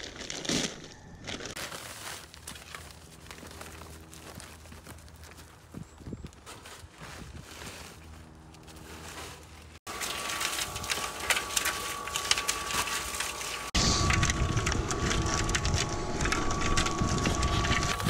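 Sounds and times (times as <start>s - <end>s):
wind buffeting microphone: 5.6s - 6.4s, 13.8s - 18.0s
cement mixer whining: 7.9s - 18.0s
sand rattling in mixer drum: 9.8s - 18.0s.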